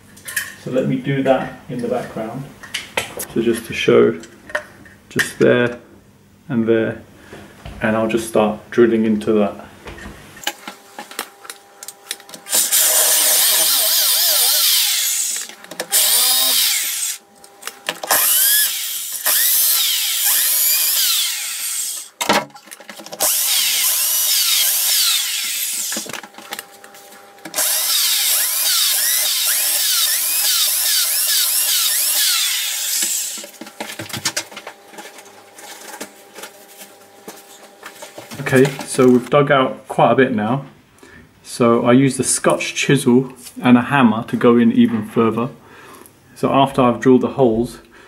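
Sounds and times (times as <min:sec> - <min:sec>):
power drill drilling into brick: 0:12.5 - 0:17.2, 0:18.1 - 0:22.1, 0:23.2 - 0:26.1, 0:27.6 - 0:33.5.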